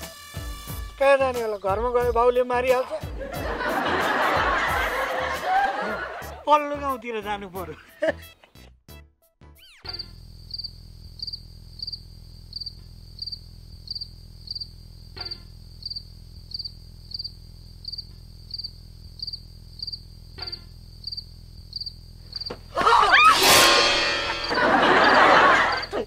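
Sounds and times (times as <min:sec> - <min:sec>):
cricket chirping: 0:09.6 - 0:26.0
low steady hum: 0:09.9 - 0:26.0.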